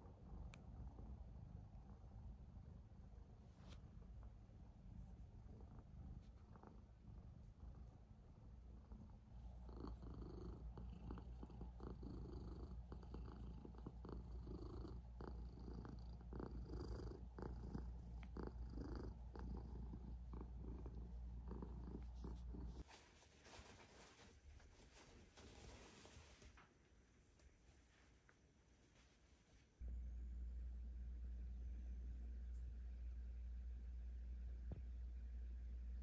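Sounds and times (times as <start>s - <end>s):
cat purring: 0.0s - 22.9s
scratching strokes on fur: 9.4s - 26.7s.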